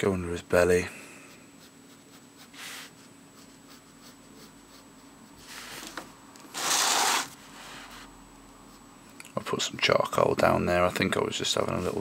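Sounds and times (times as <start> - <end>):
paper rustling: 5.5 - 7.4
pen scratching on paper: 6.6 - 7.4.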